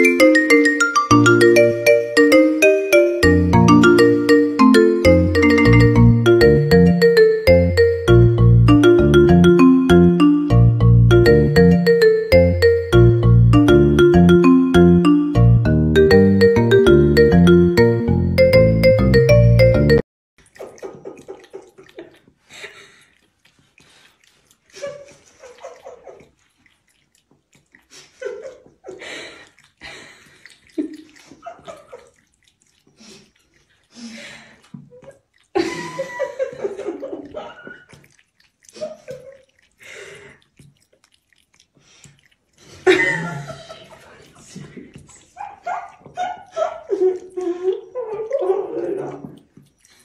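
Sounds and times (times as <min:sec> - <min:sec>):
faucet water splashing: 0:00.0 - 0:15.2, 0:20.4 - 0:50.0
cat lapping water: 0:20.4 - 0:47.9, 0:49.1 - 0:50.0.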